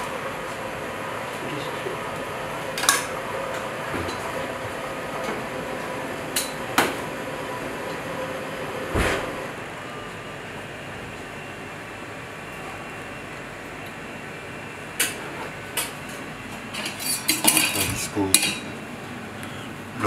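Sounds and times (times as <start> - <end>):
kitchen ventilation hum: 0.0 - 20.0
utensils clinking on plates and pans: 16.7 - 18.7.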